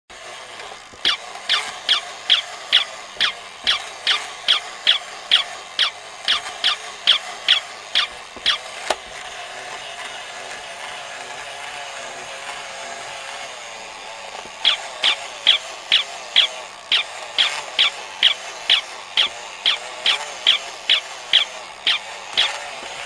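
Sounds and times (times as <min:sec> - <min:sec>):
toy motor and gears whirring: 0:00.1 - 0:23.0
high electronic yips: 0:01.0 - 0:08.7, 0:14.6 - 0:22.5.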